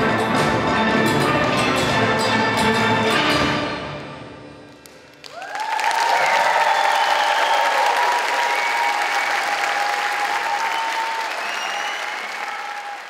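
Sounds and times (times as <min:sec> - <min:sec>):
audience applauding and cheering: 0:04.7 - 0:13.0
held whoops: 0:05.3 - 0:13.0.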